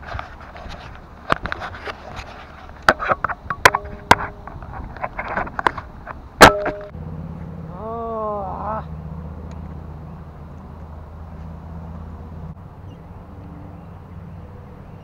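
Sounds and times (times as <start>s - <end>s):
steady low hum: 0.0s - 15.0s
camera handling knocks and scrapes: 0.1s - 6.9s.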